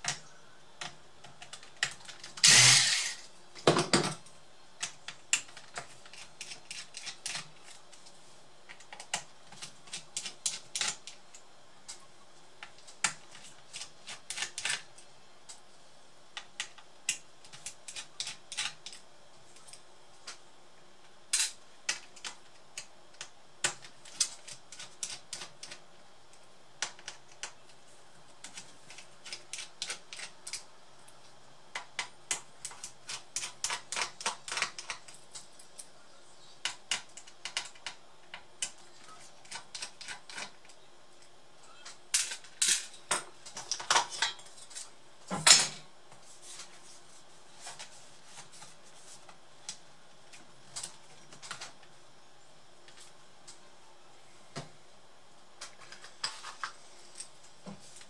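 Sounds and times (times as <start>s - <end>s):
electric screwdriver running: 2.4s - 3.2s.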